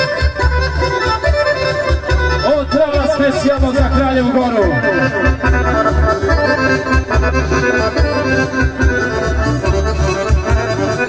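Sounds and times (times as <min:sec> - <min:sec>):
accordion melody: 0:00.0 - 0:11.0
steady bass beat: 0:00.4 - 0:11.0.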